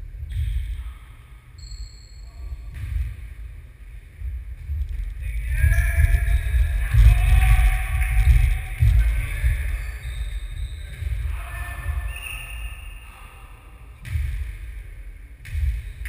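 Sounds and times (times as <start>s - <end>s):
low rumble: 2.5s - 16.0s
ball bouncing on wooden floor: 15.4s - 16.0s.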